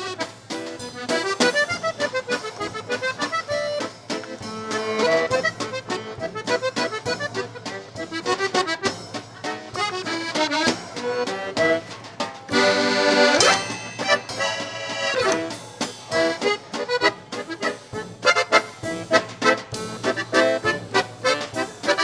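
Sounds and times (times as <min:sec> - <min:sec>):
lively background music: 0:09.7 - 0:17.9.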